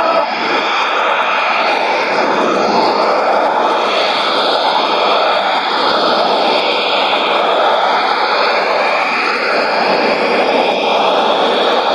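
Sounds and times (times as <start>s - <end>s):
radio static hiss: 0.0s - 0.7s.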